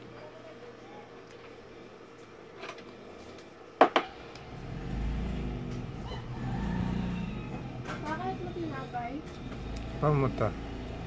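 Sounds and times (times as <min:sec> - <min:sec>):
low mechanical drone: 0:04.1 - 0:11.0.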